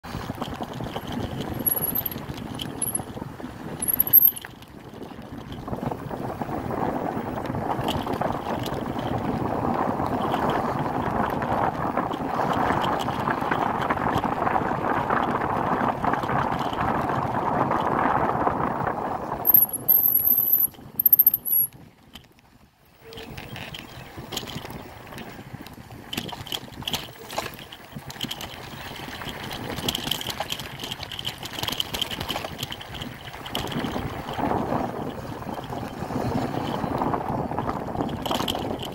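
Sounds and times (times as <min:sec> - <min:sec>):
bike rattling: 0:00.0 - 0:38.9
bike tyres rumbling on dirt: 0:00.0 - 0:38.9.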